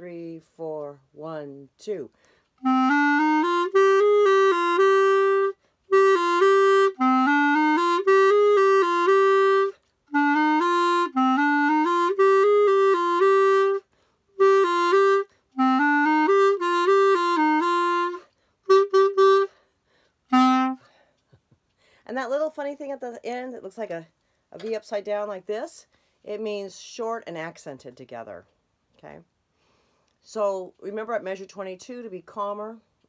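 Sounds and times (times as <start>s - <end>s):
solo clarinet melody: 2.6s - 19.7s, 20.3s - 20.9s.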